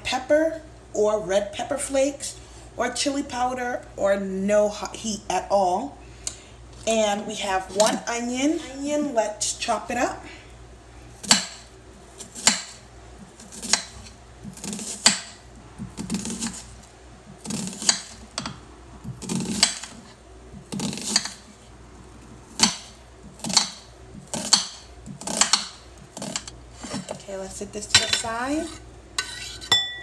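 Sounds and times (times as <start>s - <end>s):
knife slicing onion on board: 12.2s - 16.7s, 17.4s - 18.5s, 19.1s - 20.0s, 20.6s - 21.4s, 22.5s - 27.1s.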